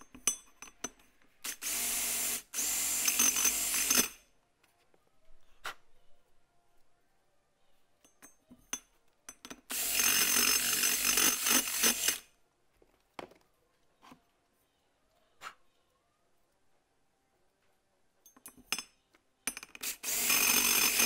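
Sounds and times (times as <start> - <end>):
tool handling clicks and knocks: 18.2 - 18.9
drill grinding valve seat: 19.8 - 21.0.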